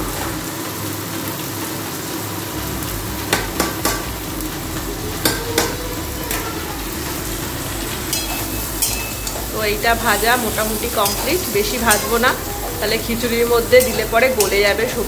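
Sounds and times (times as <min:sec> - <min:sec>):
sizzling hiss: 0:00.0 - 0:15.0
utensil knocking against metal pot: 0:03.3 - 0:04.1
pot of dal being stirred: 0:07.1 - 0:15.0.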